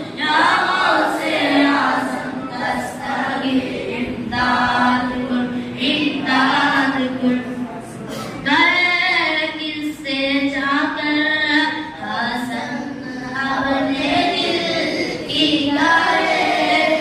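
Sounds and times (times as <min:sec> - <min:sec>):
boys singing together: 0:00.0 - 0:07.5, 0:11.9 - 0:17.0.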